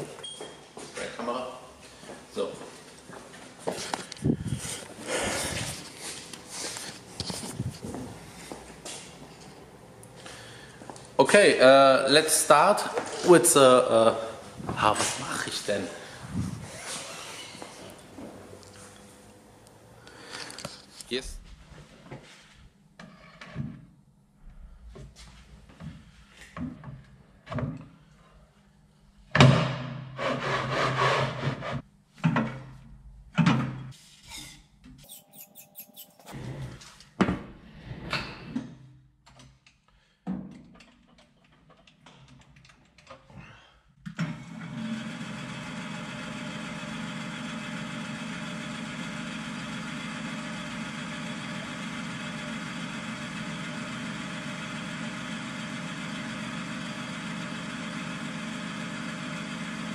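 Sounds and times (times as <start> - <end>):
drill press motor running: 44.4 - 59.9.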